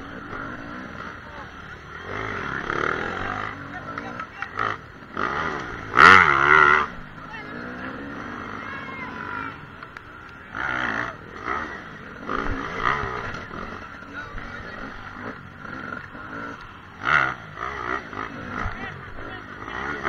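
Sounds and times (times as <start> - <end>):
dirt bike engine revving: 0.0 - 20.0.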